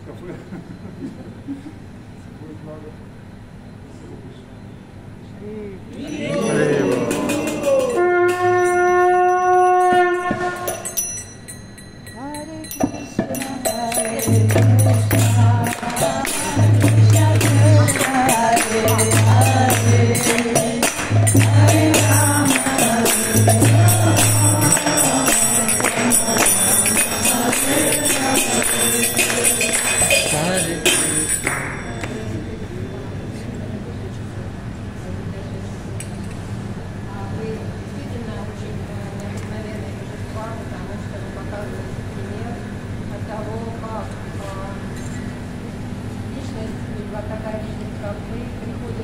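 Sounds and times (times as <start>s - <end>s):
group singing: 6.0s - 8.2s, 13.2s - 31.6s
hand cymbals ringing: 6.0s - 34.1s.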